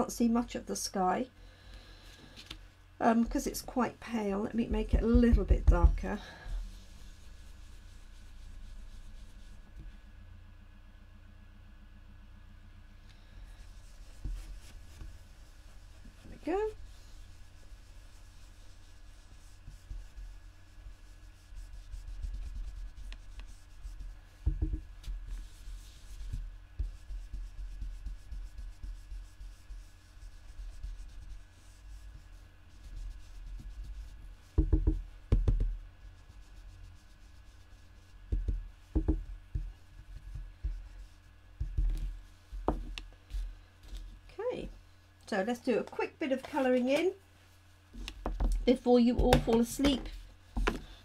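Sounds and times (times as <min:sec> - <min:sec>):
brush scratching on cardstock: 0:04.5 - 0:09.8, 0:13.4 - 0:44.2
dull knocks: 0:04.8 - 0:06.1, 0:24.4 - 0:24.9, 0:34.6 - 0:35.8, 0:38.3 - 0:39.8.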